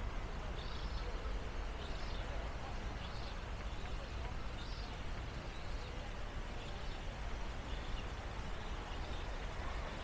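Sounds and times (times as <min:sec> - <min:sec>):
background hiss: 0:00.0 - 0:10.0
faint bird chirps: 0:00.6 - 0:01.2.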